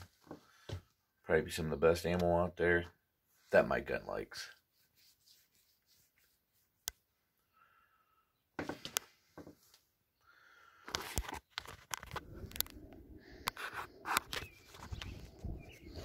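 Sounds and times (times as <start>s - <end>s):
low rumble: 12.2s - 16.0s.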